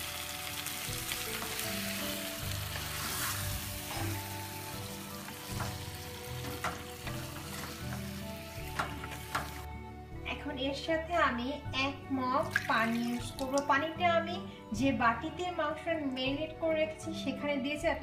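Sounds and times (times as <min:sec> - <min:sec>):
meat sizzling in a pot: 0:00.0 - 0:09.7
wooden spatula scraping a pot: 0:02.7 - 0:04.2.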